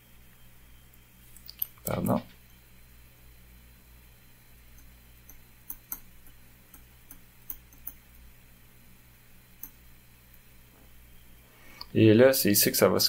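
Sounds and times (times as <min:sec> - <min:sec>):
faint low hum: 0:00.0 - 0:13.0
stylus tapping on screen: 0:04.7 - 0:08.0.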